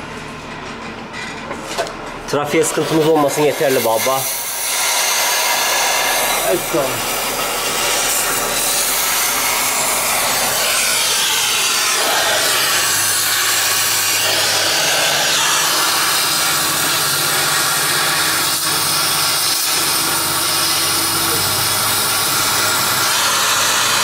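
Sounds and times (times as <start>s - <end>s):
steady low hum: 0.0s - 24.0s
welding torch hissing: 2.3s - 24.0s.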